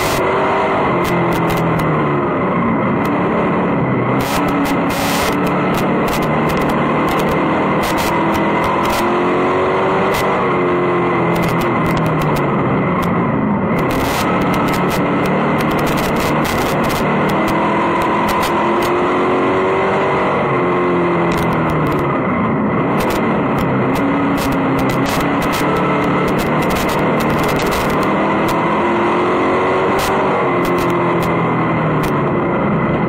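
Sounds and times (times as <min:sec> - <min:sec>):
sharp clicks and ticks: 0:00.0 - 0:00.2, 0:00.9 - 0:02.0, 0:03.0 - 0:03.2, 0:04.1 - 0:09.2, 0:10.0 - 0:10.3, 0:11.2 - 0:19.1, 0:21.2 - 0:22.1, 0:22.9 - 0:28.7, 0:29.8 - 0:31.4, 0:32.0 - 0:32.3
race car engine: 0:00.0 - 0:33.0.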